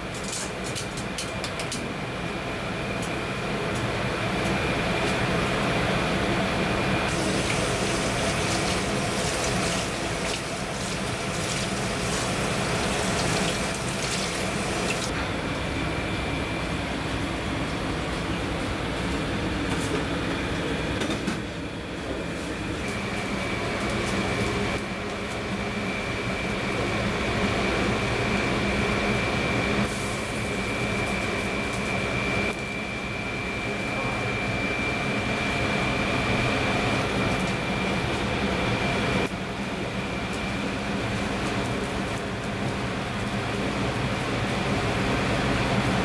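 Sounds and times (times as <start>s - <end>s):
kitchen hum and hiss: 0.0s - 46.0s
pot boiling: 7.0s - 15.2s.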